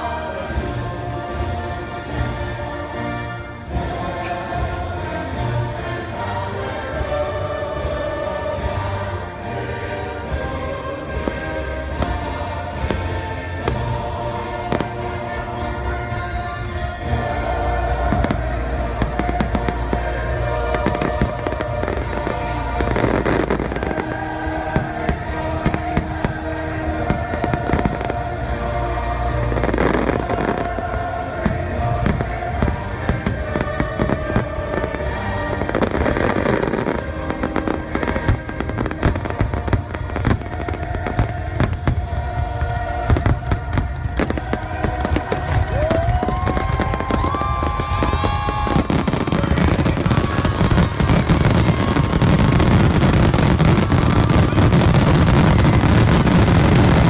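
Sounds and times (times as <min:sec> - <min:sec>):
music playing: 0:00.0 - 0:57.0
fireworks bangs: 0:29.6 - 0:57.0.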